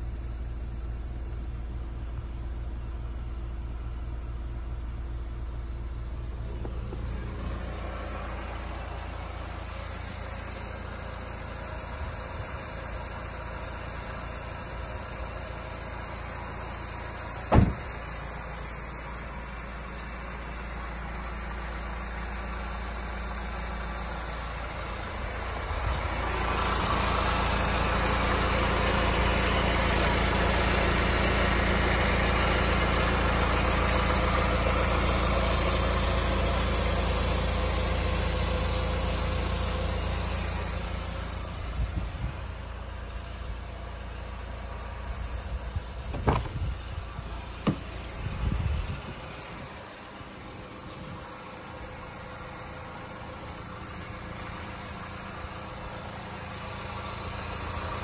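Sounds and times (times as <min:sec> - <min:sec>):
diesel engine idling: 0:00.0 - 0:58.0
car door clicks: 0:17.5 - 0:18.0, 0:46.1 - 0:46.7, 0:47.6 - 0:48.0.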